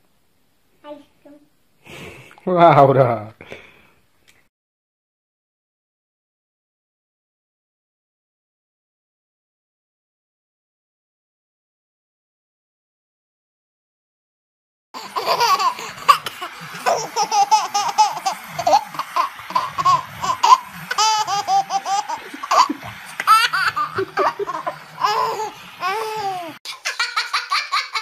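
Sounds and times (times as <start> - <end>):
baby laughing: 15.0 - 28.0
higher-pitched laugh: 15.0 - 28.0.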